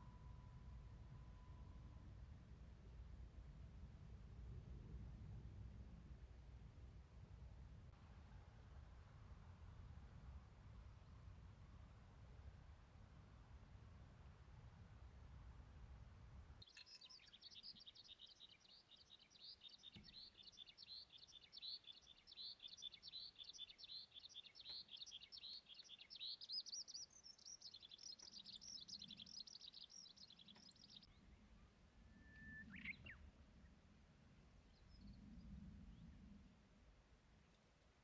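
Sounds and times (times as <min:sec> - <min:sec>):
songbird chattering song: 0:16.6 - 0:33.3.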